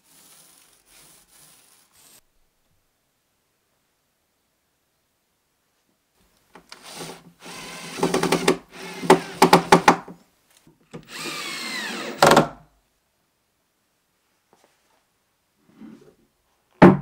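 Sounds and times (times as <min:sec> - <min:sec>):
drill clicking: 0:06.7 - 0:10.0, 0:11.0 - 0:12.5
cordless drill motor whine: 0:06.8 - 0:08.0, 0:11.0 - 0:12.4.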